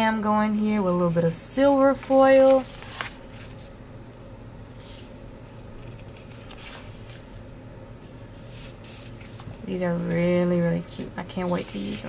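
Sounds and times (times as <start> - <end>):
steady low hum: 0.0 - 12.0
paper rustling and rubbing: 1.0 - 3.8, 4.8 - 7.4, 8.3 - 10.6, 11.2 - 12.0.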